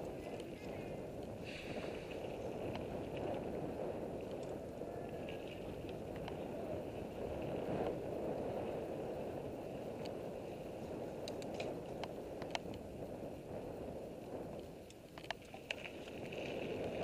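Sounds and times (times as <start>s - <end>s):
bike tyres rolling on dirt: 0.0s - 17.0s
wind buffeting microphone: 0.0s - 17.0s
bike clicks: 10.9s - 13.2s, 14.5s - 16.0s.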